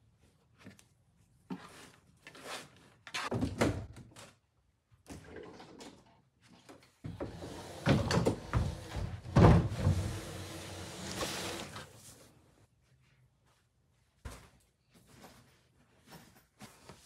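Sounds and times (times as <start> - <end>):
drawer knocks and thumps: 7.8 - 10.4.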